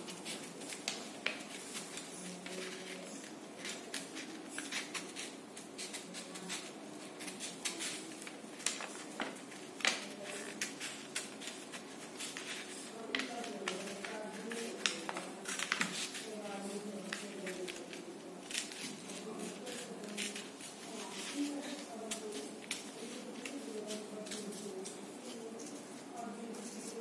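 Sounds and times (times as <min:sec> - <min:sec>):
scissors snipping paper: 0:00.0 - 0:25.8.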